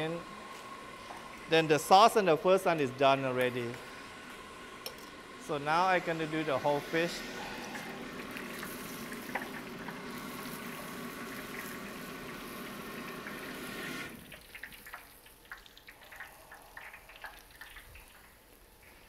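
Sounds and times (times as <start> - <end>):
fish deep-frying in hot oil: 7.4 - 18.4.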